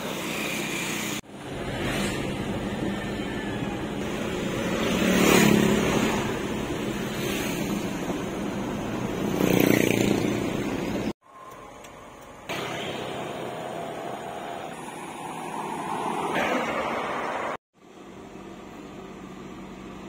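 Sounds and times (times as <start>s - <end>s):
road and wind noise: 0.0s - 20.0s
truck engine hum: 10.0s - 20.0s.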